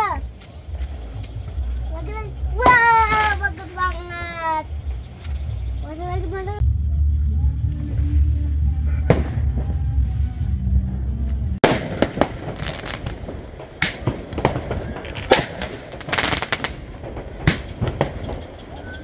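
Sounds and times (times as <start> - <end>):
low rumble: 0.3 - 19.0
fireworks bangs: 8.9 - 10.4, 11.6 - 19.0
fireworks crackling: 11.5 - 19.0.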